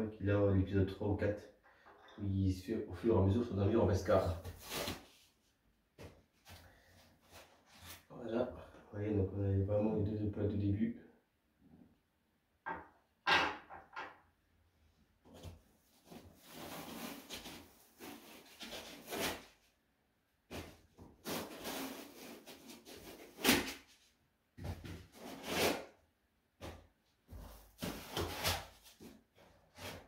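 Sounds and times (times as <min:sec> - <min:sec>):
packaging rustling and scraping: 0:16.0 - 0:19.6, 0:20.5 - 0:23.9.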